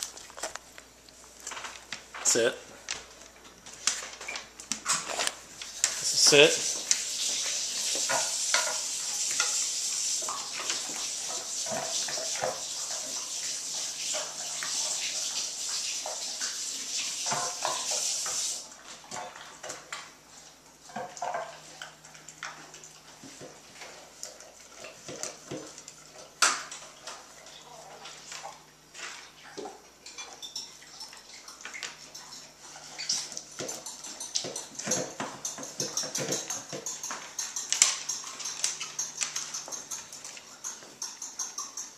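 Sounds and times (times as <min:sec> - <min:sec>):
dog eating from metal bowl: 0:00.0 - 0:41.9.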